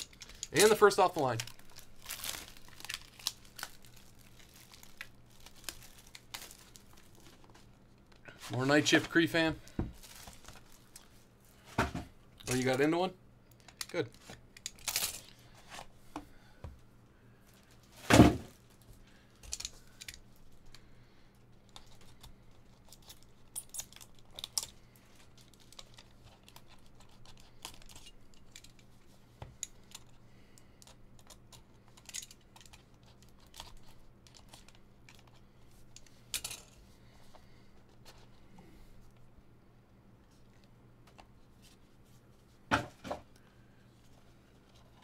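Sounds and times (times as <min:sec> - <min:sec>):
cardboard box thump: 0:18.1 - 0:18.5.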